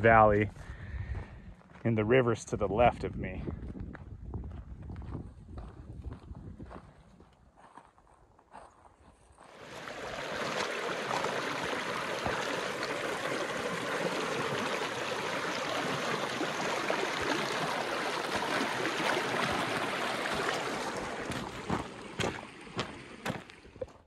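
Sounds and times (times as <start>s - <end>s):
stream rushing over stones: 9.5s - 23.8s.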